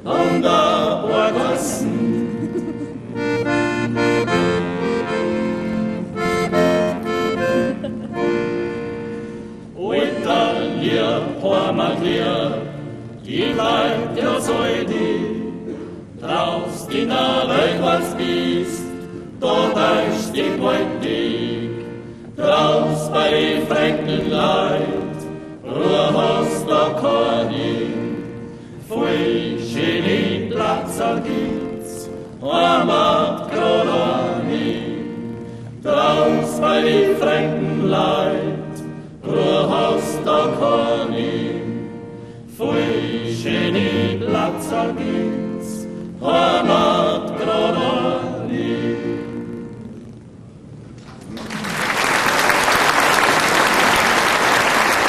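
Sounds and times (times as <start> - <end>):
men singing in harmony: 0.0 - 5.2, 9.6 - 49.8
singers breathing: 8.9 - 9.7, 28.4 - 28.8, 42.1 - 42.6.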